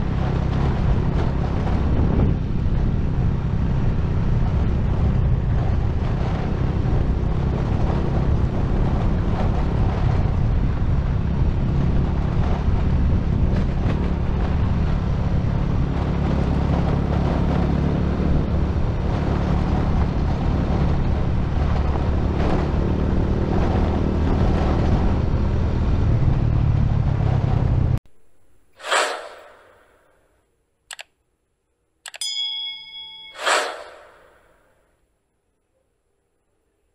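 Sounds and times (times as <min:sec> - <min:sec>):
vehicle road rumble and wind: 0:00.0 - 0:30.3
whoosh: 0:28.8 - 0:30.1, 0:33.2 - 0:34.7
bell-like chime: 0:32.2 - 0:33.8.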